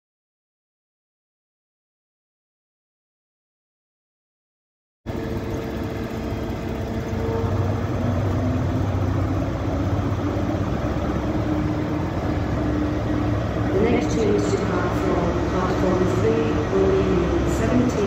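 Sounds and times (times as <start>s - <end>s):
diesel train engine humming: 5.1s - 18.0s.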